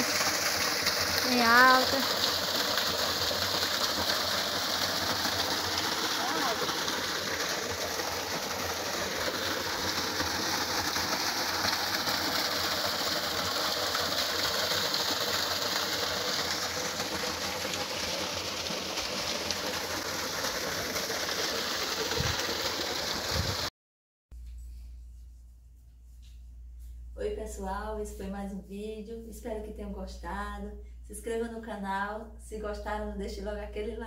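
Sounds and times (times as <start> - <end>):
waterfall rushing over rocks: 0.0 - 23.7.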